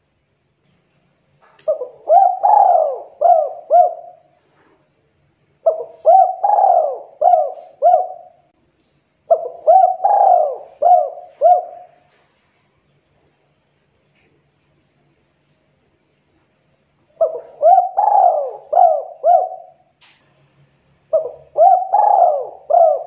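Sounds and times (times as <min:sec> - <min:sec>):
dove cooing: 0:01.7 - 0:04.7, 0:05.6 - 0:08.5, 0:09.3 - 0:12.2, 0:17.2 - 0:19.9, 0:21.1 - 0:23.0.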